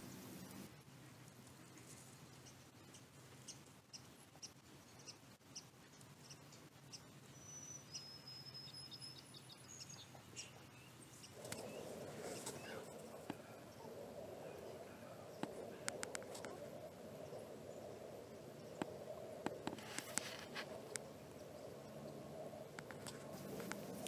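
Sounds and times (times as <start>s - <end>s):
faint bird chirps: 1.6s - 23.6s
low rushing noise: 11.0s - 24.0s
light ticks: 15.4s - 16.6s.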